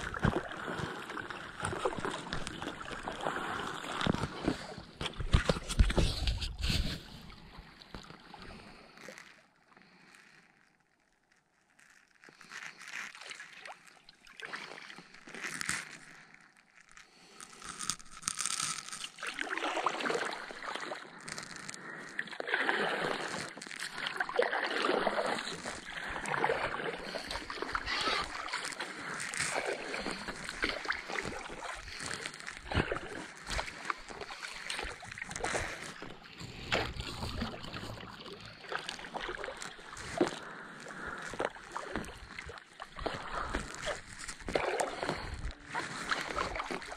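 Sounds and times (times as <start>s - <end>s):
kayak paddle splashing in water: 0.0s - 8.8s, 18.4s - 46.9s
faint water sound: 0.0s - 46.9s.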